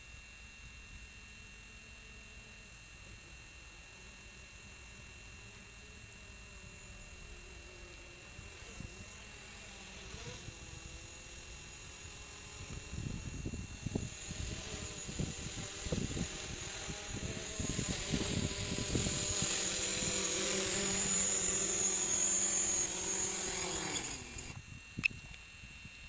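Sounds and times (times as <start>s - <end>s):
drone propellers buzzing: 5.8s - 24.7s.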